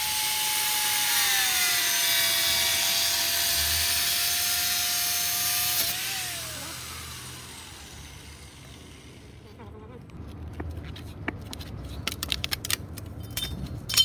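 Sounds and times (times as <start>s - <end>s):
angle grinder cutting metal: 0.0s - 9.5s
grinder disc spinning down: 1.2s - 9.5s.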